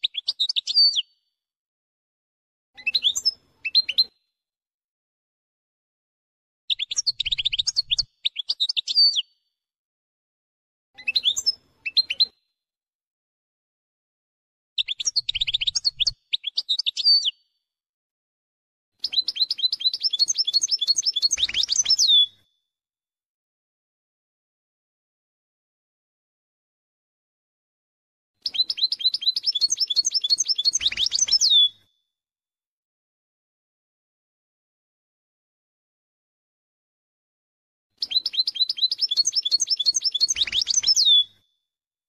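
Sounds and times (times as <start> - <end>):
goldfinch twittering song: 19.0 - 22.4, 28.4 - 31.8, 38.0 - 41.3.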